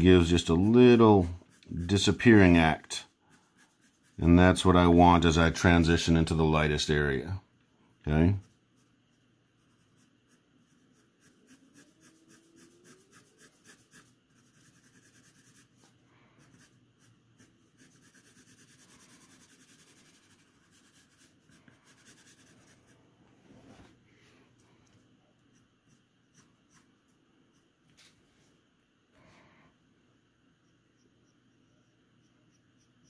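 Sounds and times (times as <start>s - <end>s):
pencil scratching on paper: 0.0s - 5.0s, 8.3s - 23.0s, 25.4s - 28.1s.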